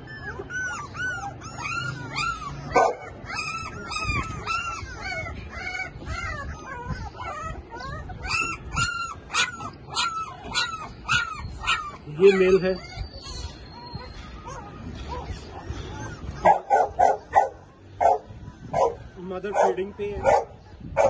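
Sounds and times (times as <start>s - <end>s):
puppies whimpering and yelping: 0.0s - 21.0s.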